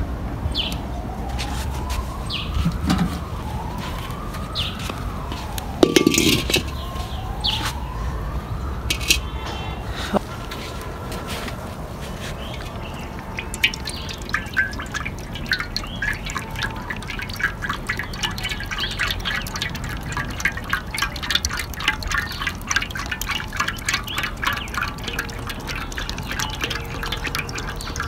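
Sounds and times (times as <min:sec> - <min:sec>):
glugs and splashes: 0:01.3 - 0:07.6, 0:08.9 - 0:28.0
oil pouring into a pan: 0:05.8 - 0:06.8, 0:12.4 - 0:28.0.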